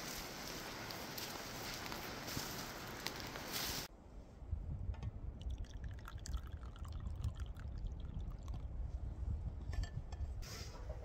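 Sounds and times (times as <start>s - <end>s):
liquid pouring into a cup: 5.4s - 8.7s.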